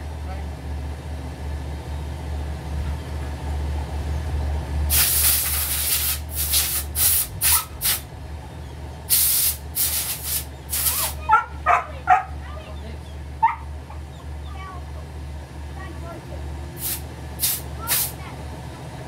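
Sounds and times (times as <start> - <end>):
pressurised spray hissing: 4.9 - 8.0, 9.1 - 11.2, 16.8 - 18.2.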